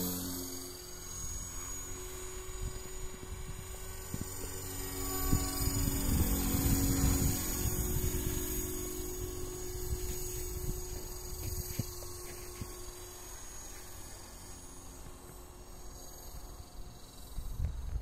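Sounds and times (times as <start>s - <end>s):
rc helicopter hum and whine: 0.0s - 18.0s
wind buffeting microphone: 2.3s - 12.9s.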